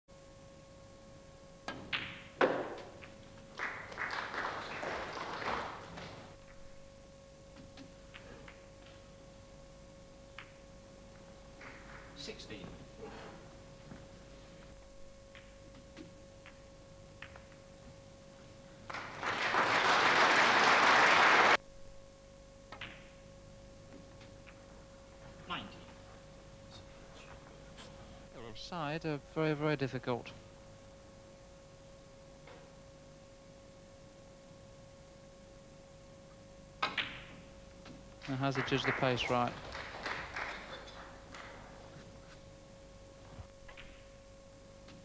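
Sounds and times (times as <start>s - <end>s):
cue striking ball: 1.6s - 4.0s, 36.8s - 38.1s
balls clacking together: 1.6s - 6.6s, 15.3s - 18.0s, 36.8s - 42.5s
audience applause: 3.5s - 6.4s, 18.8s - 21.6s, 38.2s - 42.3s.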